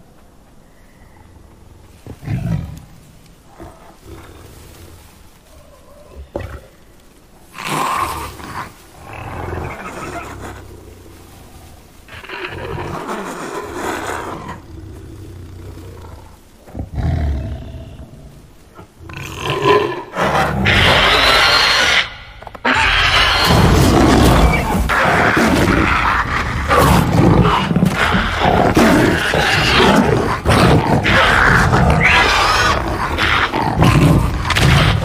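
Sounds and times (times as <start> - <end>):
creature growls: 19.1 - 35.0.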